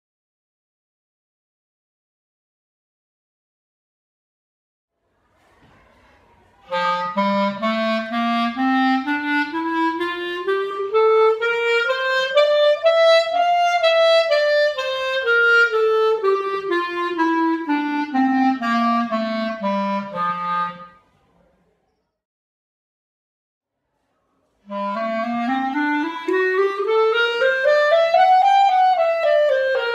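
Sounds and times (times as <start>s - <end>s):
clarinet playing a scale: 6.7s - 21.0s, 24.7s - 29.9s.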